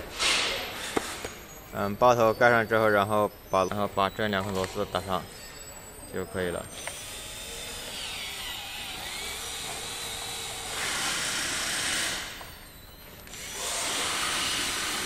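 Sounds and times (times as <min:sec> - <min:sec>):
electric screwdriver motor: 0:06.7 - 0:12.6, 0:13.2 - 0:15.0.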